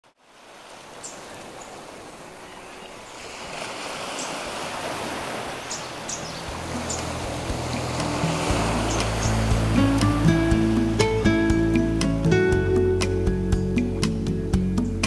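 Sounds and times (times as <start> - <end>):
ocean surf rushing: 0.1 - 15.0
music: 6.5 - 15.0.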